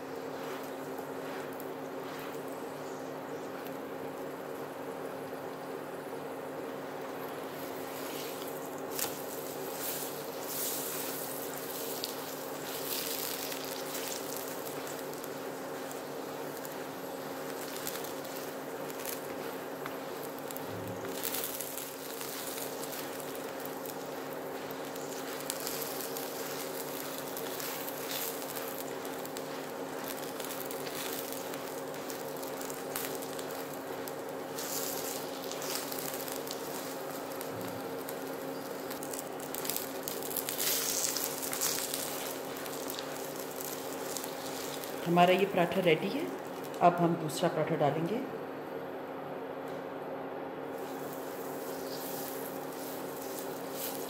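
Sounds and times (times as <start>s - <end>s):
bread sizzling in oil: 0.0s - 46.9s, 50.7s - 54.0s
cooktop buzzing hum: 0.0s - 54.0s.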